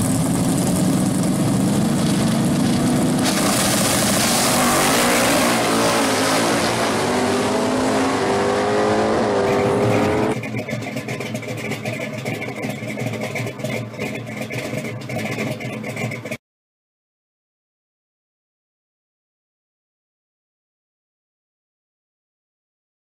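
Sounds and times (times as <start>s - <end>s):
car engine accelerating hard: 0.0s - 16.4s.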